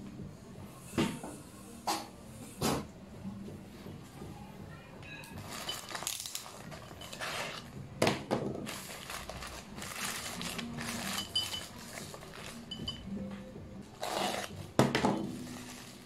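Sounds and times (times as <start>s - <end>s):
plastic bag rustling and crinkling: 5.4s - 7.8s, 8.6s - 13.0s, 15.2s - 16.0s.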